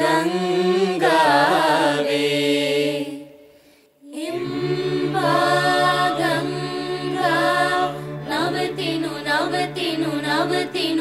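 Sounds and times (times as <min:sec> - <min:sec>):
mixed choir singing a chord: 0:00.0 - 0:03.4, 0:04.2 - 0:11.0.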